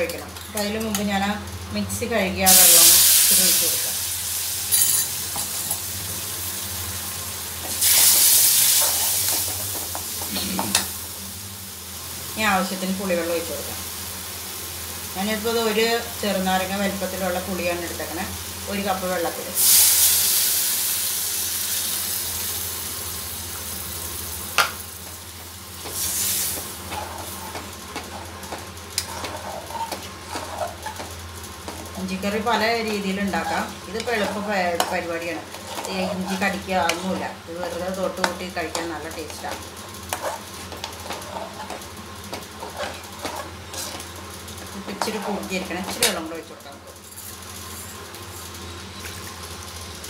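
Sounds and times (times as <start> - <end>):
loud hissing sizzle: 2.4 - 50.0
paste frying in oil: 2.5 - 50.0
metal spoon scraping a pan: 25.8 - 31.1, 32.6 - 37.3, 40.1 - 44.1.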